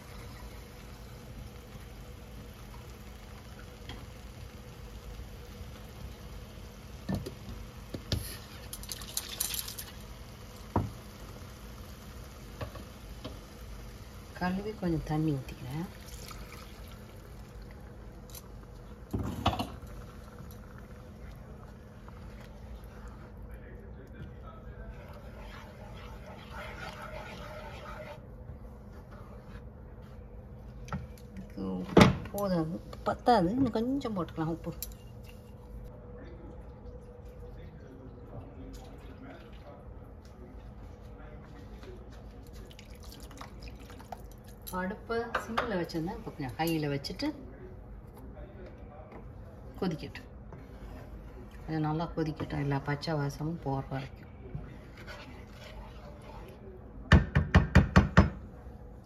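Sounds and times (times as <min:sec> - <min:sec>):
steady low hum: 0:00.0 - 0:45.1
wooden spatula scraping a pan: 0:24.9 - 0:28.3, 0:53.9 - 0:56.6.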